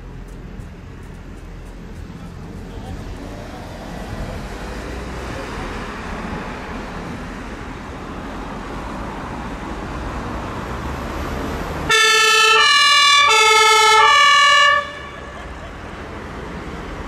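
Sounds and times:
road traffic: 0:00.0 - 0:17.0
two-tone siren: 0:11.9 - 0:15.4.

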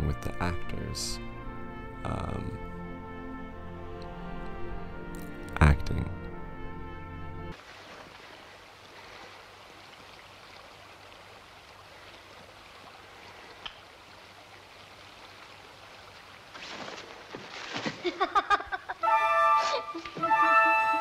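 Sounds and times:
old film soundtrack hiss: 0:18.3 - 0:21.0.

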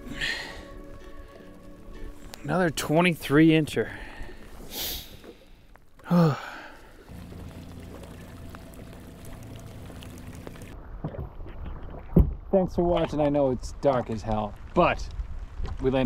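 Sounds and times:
water splashing: 0:00.0 - 0:14.1
voiced exhale: 0:03.9 - 0:07.1.

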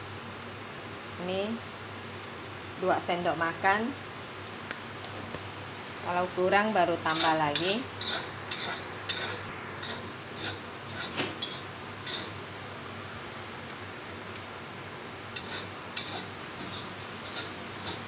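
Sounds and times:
steady low hum: 0:00.0 - 0:18.0
metal spatula scraping a wok: 0:07.1 - 0:12.4, 0:15.4 - 0:18.0.

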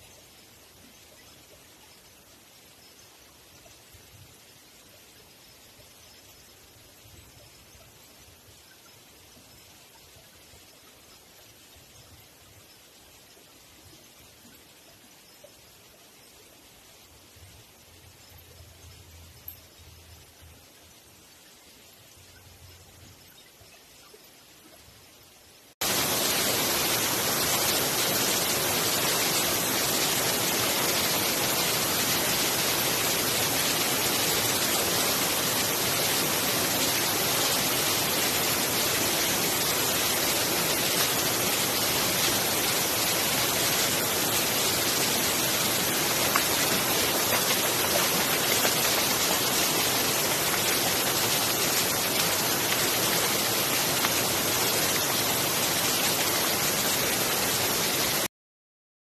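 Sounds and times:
waterfall cascading over rocks: 0:25.8 - 0:58.3.

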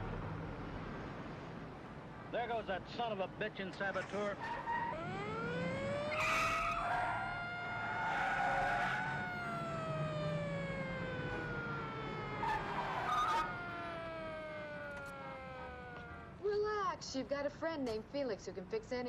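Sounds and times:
police siren wailing: 0:04.4 - 0:16.5.

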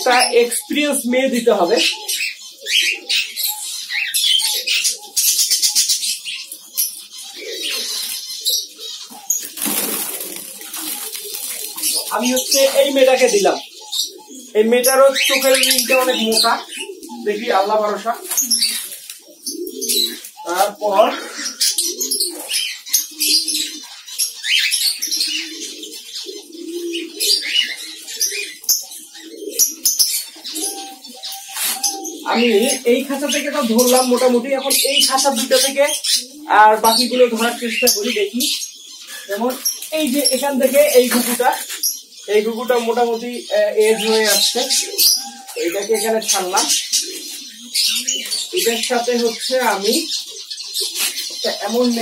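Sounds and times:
doves cooing: 0:00.0 - 0:52.0
doves fluttering in wire cage: 0:09.3 - 0:13.0.

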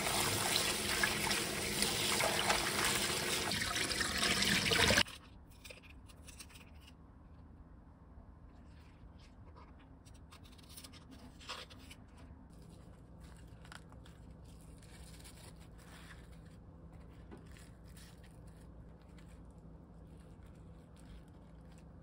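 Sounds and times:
hands handling wet leaves: 0:12.0 - 0:22.0.

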